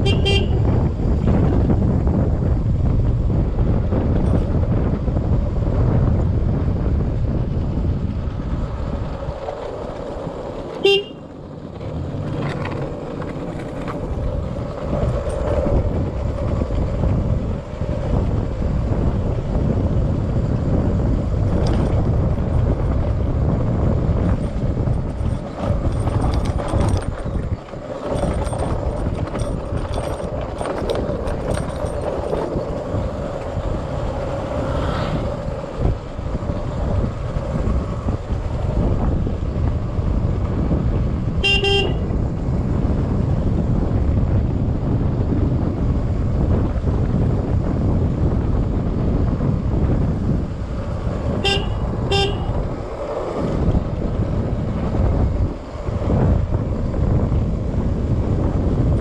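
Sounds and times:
short horn toot: 0.0 - 0.6, 10.8 - 11.2, 41.4 - 42.1, 51.4 - 52.6
motorcycle tyre rumble: 0.0 - 59.0
wind noise: 0.0 - 59.0.

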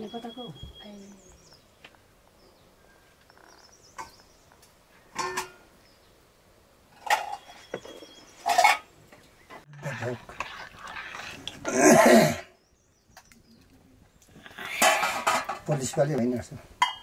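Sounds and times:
faint bird chirps: 0.0 - 4.6, 7.0 - 9.7
kitchen items clattering: 5.2 - 5.6, 7.0 - 9.0, 14.7 - 16.1.

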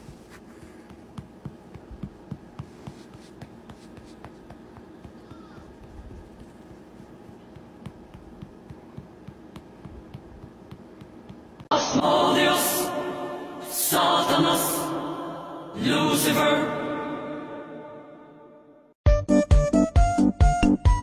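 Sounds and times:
hand rustling on fur: 0.0 - 11.7.

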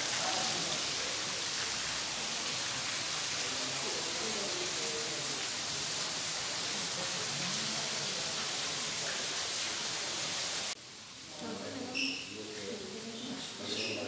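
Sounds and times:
fountain jets splashing: 0.0 - 10.8.

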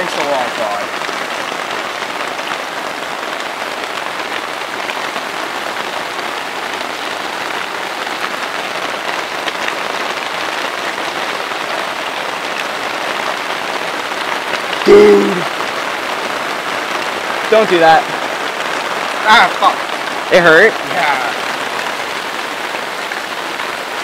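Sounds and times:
heavy hail hissing: 16.5 - 23.9.

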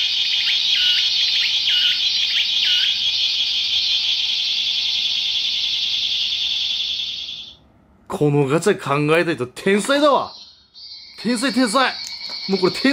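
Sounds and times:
buzz of massed cicada song: 0.0 - 7.6, 10.4 - 12.9.

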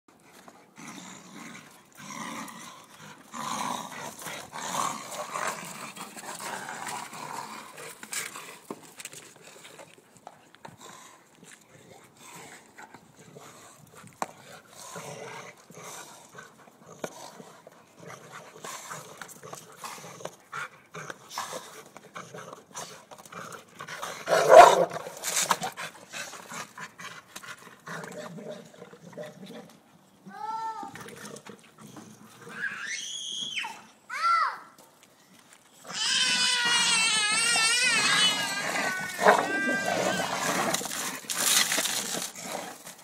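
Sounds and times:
dog whining: 35.9 - 40.8
dogs chewing rubber tire: 38.3 - 43.0.

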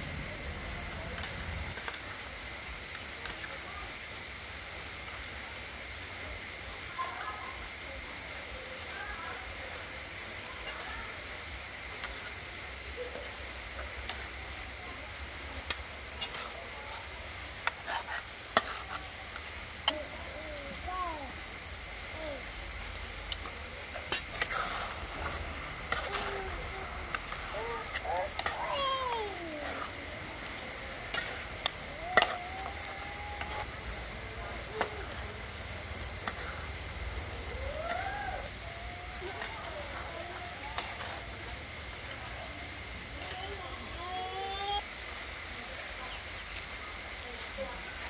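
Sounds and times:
metal spatulas scraping a wok: 17.6 - 19.0, 24.0 - 26.3, 27.2 - 29.9, 32.2 - 33.7.

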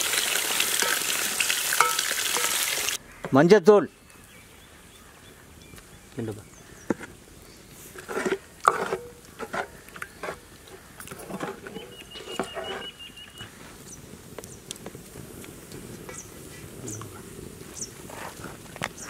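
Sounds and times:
ladle knocking and scraping pot: 8.0 - 10.4, 11.0 - 13.0.

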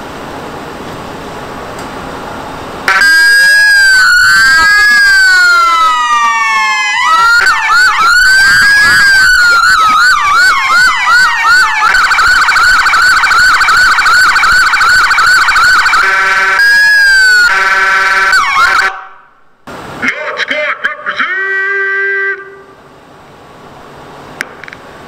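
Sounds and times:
siren steady buzzing tone: 2.8 - 19.6
siren wailing and yelping: 2.9 - 19.2.

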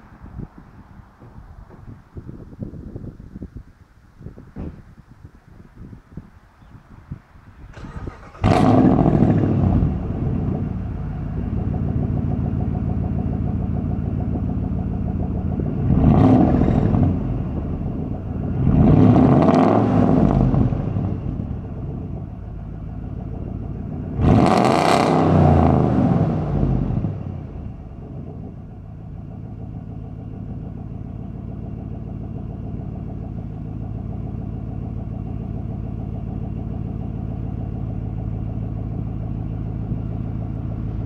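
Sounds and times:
car engine idling and revving: 7.5 - 41.0
engine starting: 7.6 - 10.1.

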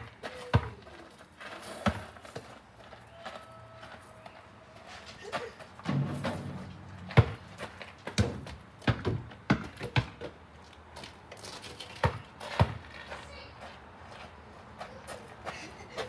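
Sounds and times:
basketball bouncing on ground: 0.4 - 0.8, 1.8 - 2.4, 5.9 - 10.4, 12.0 - 12.8.

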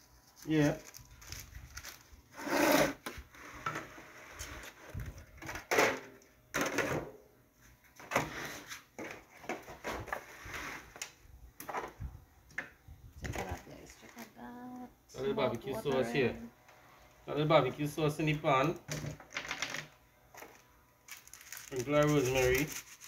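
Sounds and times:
foil pans crinkling and knocking: 19.2 - 23.0.

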